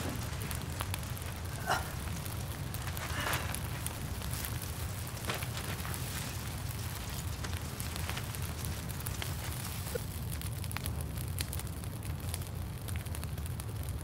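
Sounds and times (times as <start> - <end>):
campfire crackling and popping: 0.0 - 14.0.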